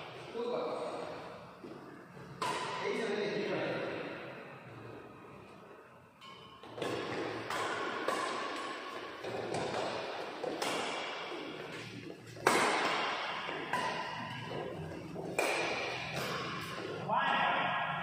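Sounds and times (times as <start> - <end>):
rackets hitting shuttlecock: 2.3 - 3.2, 6.2 - 17.4.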